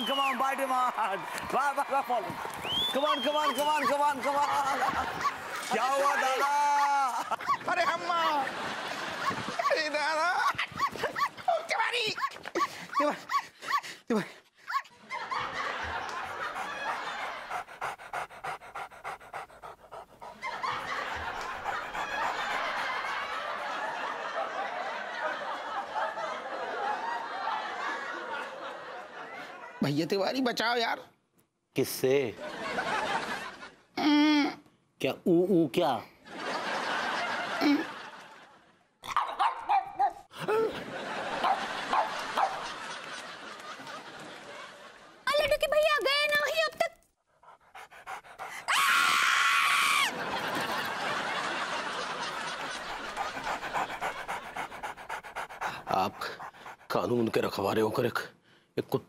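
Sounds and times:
dog panting: 3.3 - 9.8, 15.3 - 24.2, 41.3 - 43.2, 45.6 - 49.1, 50.1 - 58.0
dog barking: 39.1 - 40.3, 41.4 - 42.7.

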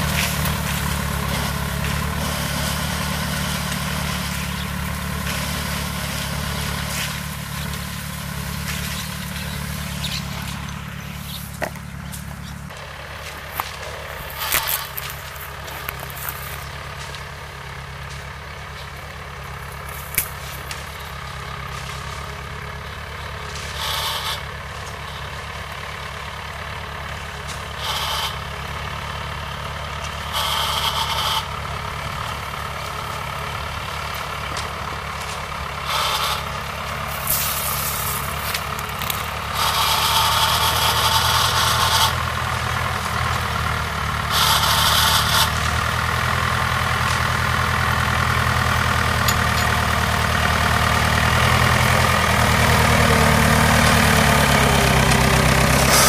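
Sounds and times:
tractor engine running: 0.0 - 56.0
bursts of hiss: 37.1 - 38.4.

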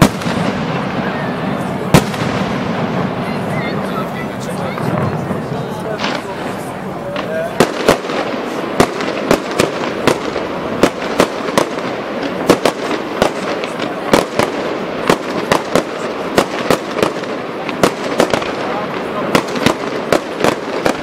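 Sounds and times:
background noise: 0.0 - 21.0
firework shells bursting: 4.8 - 21.0.

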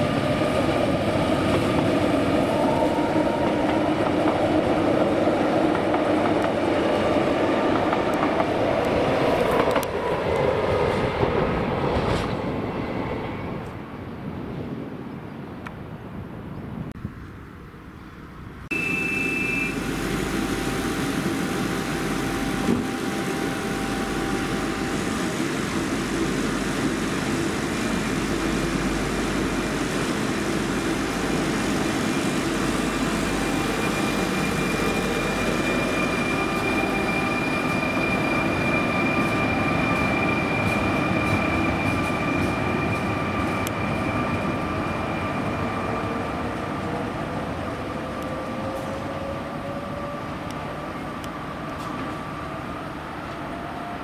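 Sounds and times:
train rolling: 0.0 - 14.8, 18.7 - 54.0
door warning beep: 18.7 - 19.8.

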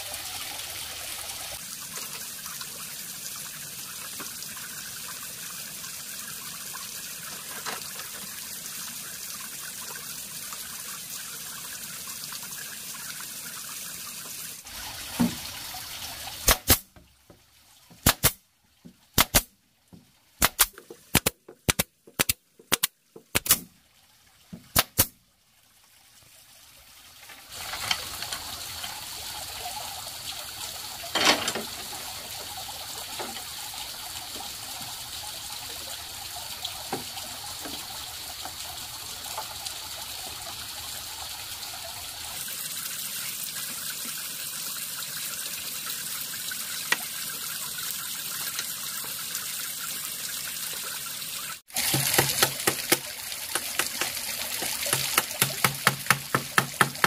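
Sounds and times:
pneumatic nail gun firing: 16.4 - 16.8, 18.0 - 18.4, 19.2 - 19.5, 20.4 - 23.6, 24.8 - 25.1.

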